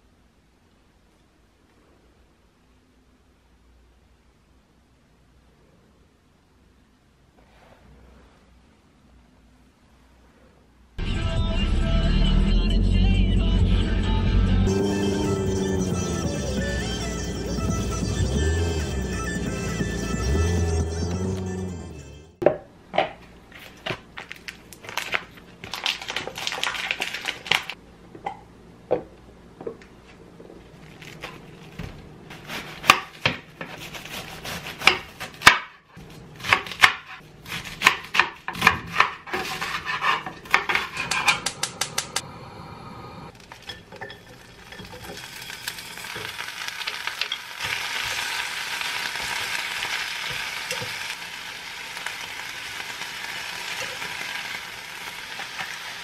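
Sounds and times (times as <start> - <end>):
knife chopping on cutting board: 32.4 - 35.8, 36.4 - 41.6
cabbage sizzling in hot pot: 43.4 - 56.0.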